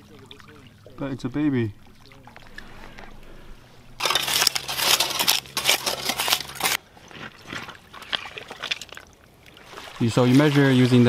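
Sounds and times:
gravel crunching and scraping: 0:02.4 - 0:11.0.

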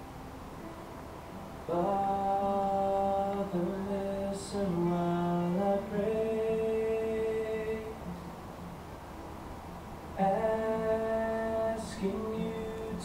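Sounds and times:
person singing a slow hymn: 0:01.7 - 0:08.4, 0:10.2 - 0:13.0.

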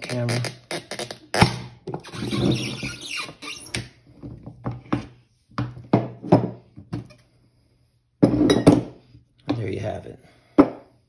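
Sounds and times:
tire rubber squeaking on rim: 0:02.0 - 0:03.8.

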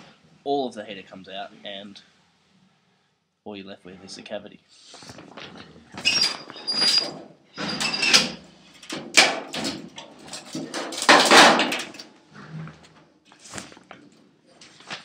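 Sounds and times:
scrapes and knocks: 0:05.0 - 0:14.8
high squeak: 0:06.0 - 0:08.3.

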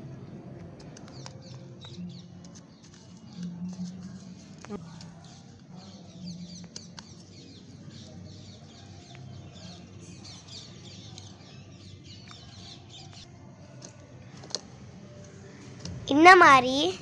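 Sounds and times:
birds chirping: 0:04.6 - 0:14.4.

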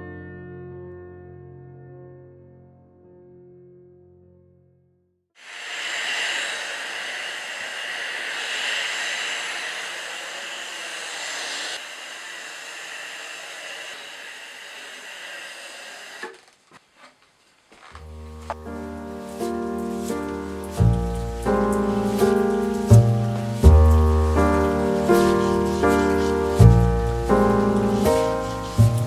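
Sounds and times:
music: 0:00.0 - 0:05.2, 0:18.0 - 0:29.0
steam iron hissing: 0:05.4 - 0:16.7, 0:22.0 - 0:29.0.

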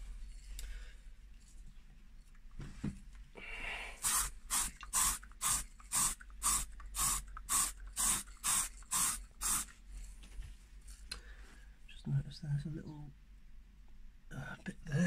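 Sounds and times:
spray paint can hissing: 0:04.0 - 0:09.8.

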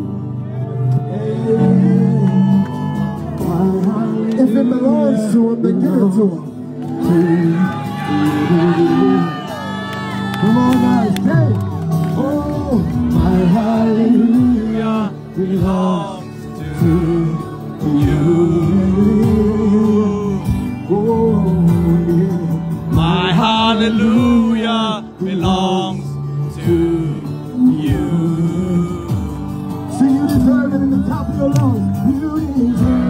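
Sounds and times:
instrumental backing music: 0:00.0 - 0:33.0
worship singing: 0:12.1 - 0:30.6.

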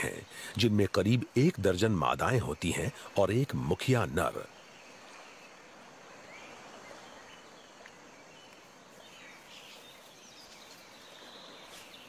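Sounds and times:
rainforest hiss: 0:00.0 - 0:12.0
bird chirps: 0:04.3 - 0:12.0.

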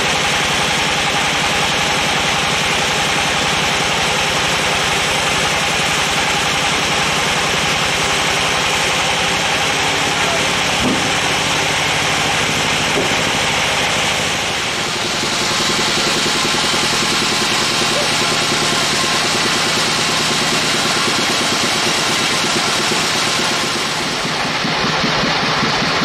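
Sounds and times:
band sawmill engine droning: 0:00.0 - 0:26.0.

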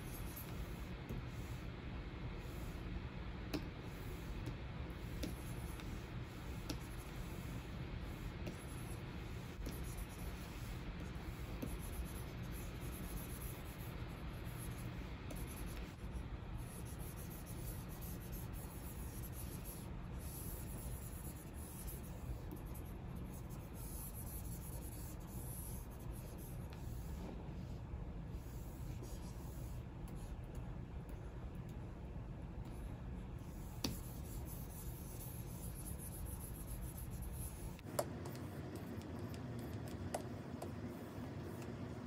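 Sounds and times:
stylus scratching on glass screen: 0:00.0 - 0:01.7, 0:03.6 - 0:27.3, 0:28.4 - 0:30.4, 0:33.4 - 0:42.0
pen tapping on screen: 0:03.5 - 0:03.7, 0:04.4 - 0:06.0, 0:06.6 - 0:07.0, 0:33.7 - 0:34.2, 0:37.8 - 0:40.9.

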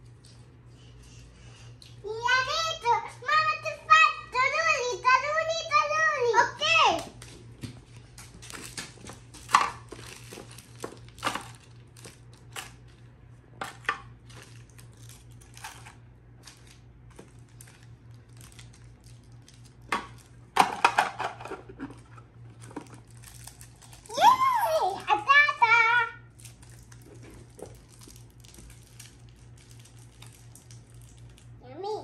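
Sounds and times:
candy wrappers crinkling: 0:07.0 - 0:20.6, 0:22.5 - 0:25.4, 0:26.2 - 0:31.6.

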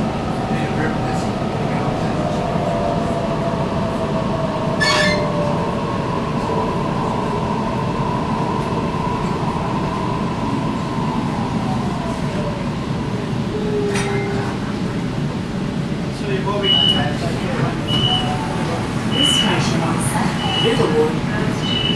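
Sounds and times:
train wheels rumbling on track: 0:00.0 - 0:21.9
sharp squeak: 0:04.8 - 0:05.3.

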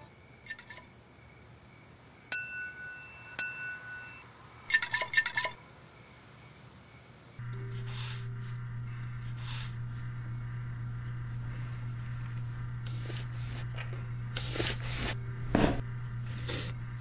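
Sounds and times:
sharp ringing clinks: 0:02.3 - 0:04.2.

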